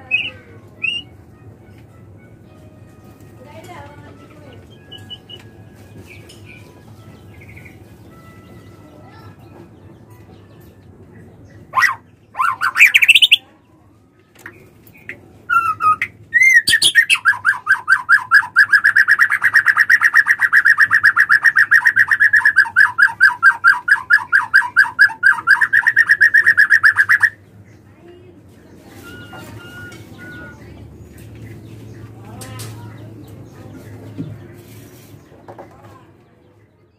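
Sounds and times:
bird calling and trilling: 0:00.0 - 0:01.2, 0:04.5 - 0:09.8, 0:10.6 - 0:13.6, 0:14.5 - 0:27.8, 0:28.7 - 0:35.2.

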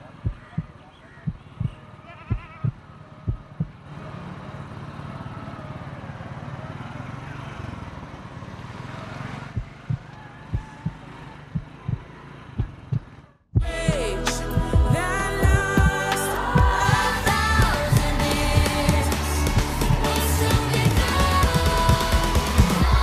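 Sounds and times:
low double thumps: 0:09.6 - 0:16.0.

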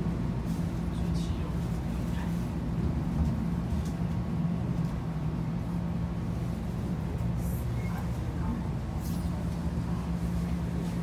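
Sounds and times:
electric train interior rumble: 0:00.0 - 0:11.0.

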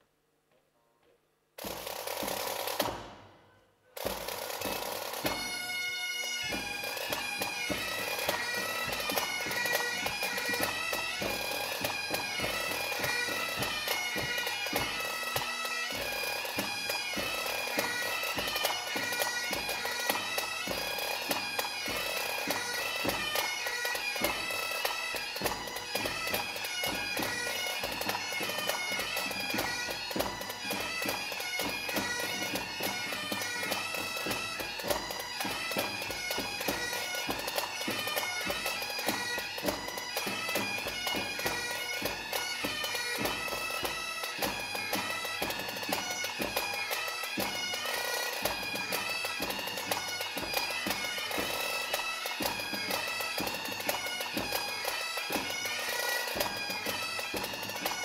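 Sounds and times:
bagpipes playing: 0:04.0 - 0:58.0.

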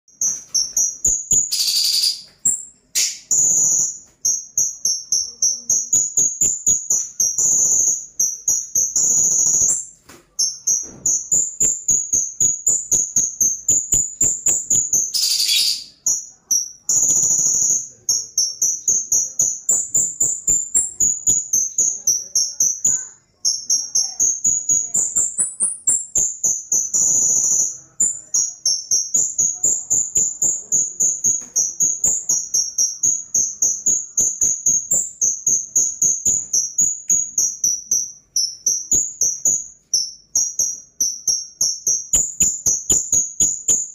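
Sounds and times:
bird singing fast chatter: 0:00.2 - 0:37.6.

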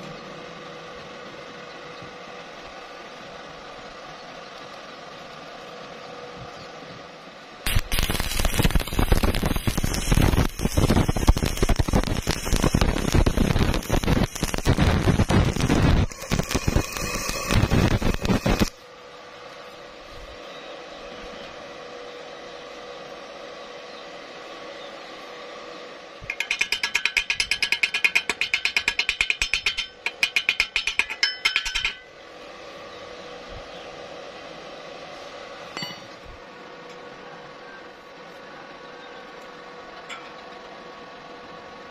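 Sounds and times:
welding arc crackling and sizzling: 0:07.6 - 0:18.8, 0:26.2 - 0:32.2
chipping hammer knocking on metal: 0:26.3 - 0:32.0.

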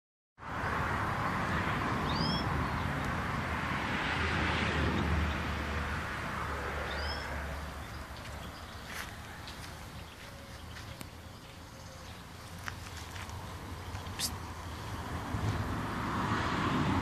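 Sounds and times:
bird chirping: 0:02.0 - 0:02.9, 0:06.8 - 0:15.1.

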